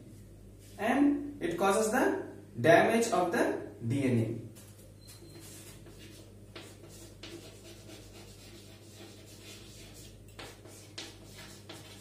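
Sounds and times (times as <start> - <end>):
low electrical hum: 0.0 - 12.0
chalk scratching on blackboard: 5.2 - 12.0.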